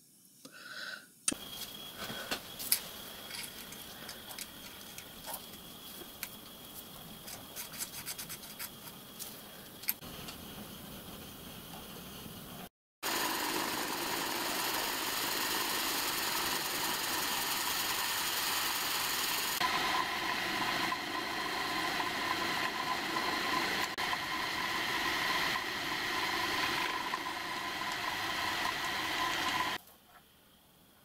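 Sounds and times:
milling machine cutting metal: 0:13.1 - 0:29.8.

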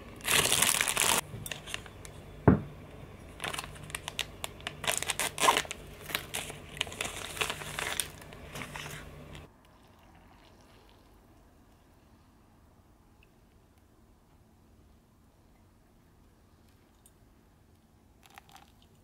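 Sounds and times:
paper filter crinkling: 0:00.2 - 0:01.9, 0:03.3 - 0:09.5.

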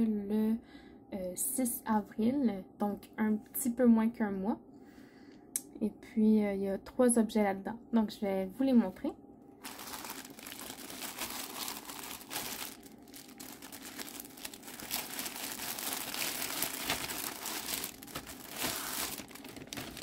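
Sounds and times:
plastic mailer crinkling: 0:09.6 - 0:20.0.

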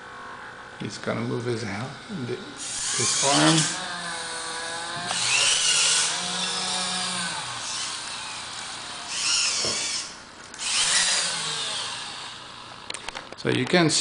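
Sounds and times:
servo motors whining: 0:02.5 - 0:13.2.

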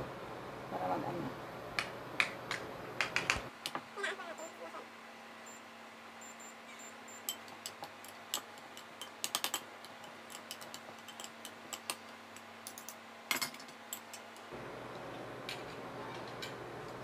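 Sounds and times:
metal spoon clinking glass bowl: 0:07.2 - 0:09.6.

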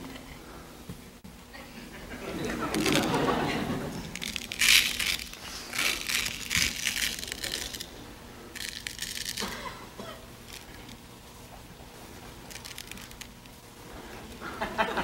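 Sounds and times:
gravel rattling in plastic bucket: 0:04.1 - 0:07.9.

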